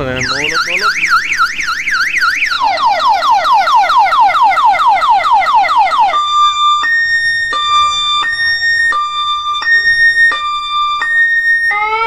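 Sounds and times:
two-tone alternating beep: 0.0 - 3.4
electronic siren warbling: 0.0 - 12.0.

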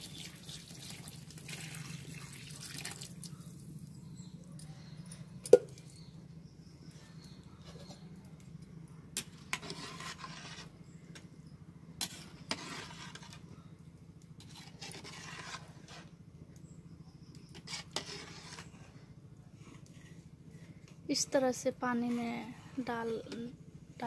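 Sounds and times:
steady low hum: 3.0 - 24.0
stirring noise: 9.2 - 11.3, 12.0 - 13.5, 14.2 - 16.3, 17.4 - 23.6.

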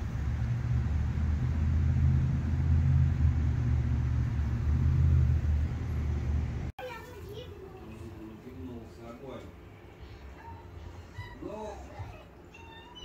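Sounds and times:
car road and engine rumble: 0.0 - 6.8.

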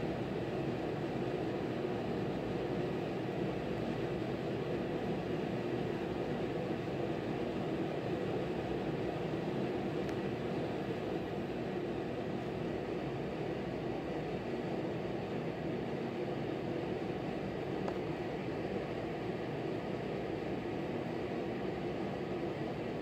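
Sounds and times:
low hiss and hum: 0.0 - 23.0.

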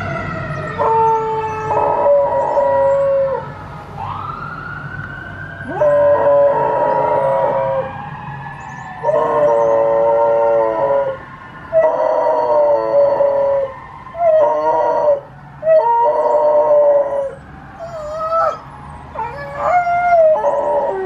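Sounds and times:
dog howling: 0.6 - 3.4, 5.6 - 7.9, 9.0 - 18.6, 19.2 - 21.0.

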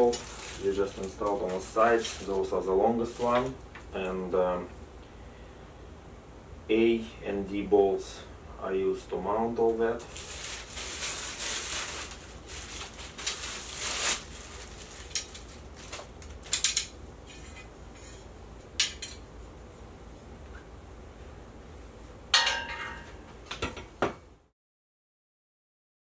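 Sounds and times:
ringing metal clank: 22.4 - 23.2
metal rods clinking: 22.4 - 23.8.

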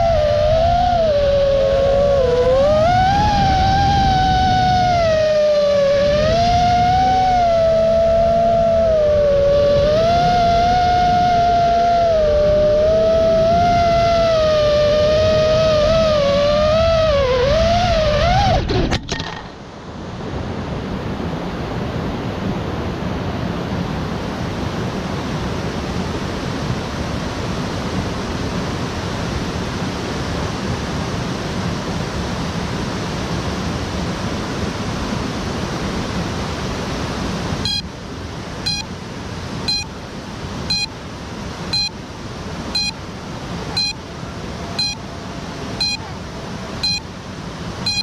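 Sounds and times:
steady rushing noise: 0.0 - 48.0
high electronic beep: 38.7 - 38.9, 39.7 - 39.9, 40.7 - 40.9, 42.8 - 43.0, 43.8 - 44.0, 44.8 - 45.0, 45.8 - 46.1, 46.8 - 47.0.

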